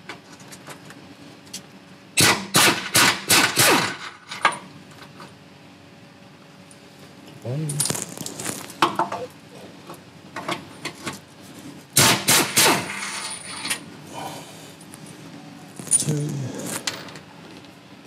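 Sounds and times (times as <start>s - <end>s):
pneumatic impact wrench bursts: 2.2s - 4.1s, 12.0s - 13.6s.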